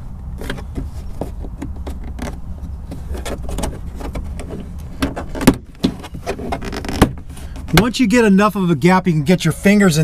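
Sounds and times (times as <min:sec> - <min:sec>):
plastic trim clicking and creaking: 0:03.0 - 0:07.8.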